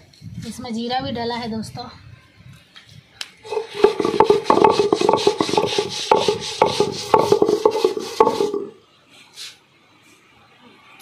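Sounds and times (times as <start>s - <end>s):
stone rubbing on stone: 3.5s - 8.8s.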